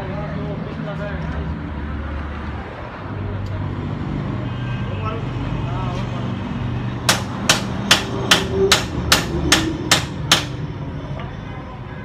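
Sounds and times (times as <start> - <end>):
metal tool striking a bolt: 7.1 - 10.6.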